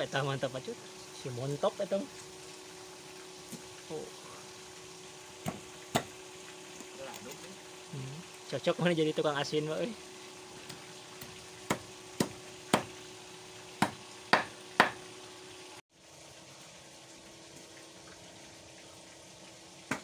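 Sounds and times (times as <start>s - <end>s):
knife chopping on wooden board: 5.4s - 6.1s, 10.7s - 13.0s, 13.8s - 15.0s.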